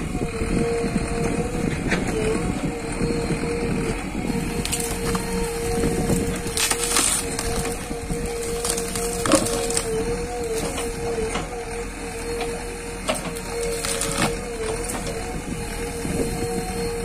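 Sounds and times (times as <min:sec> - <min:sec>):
backhoe engine humming: 0:00.0 - 0:17.0
wood cracking and snapping: 0:04.6 - 0:05.3, 0:06.0 - 0:11.6, 0:13.0 - 0:15.3.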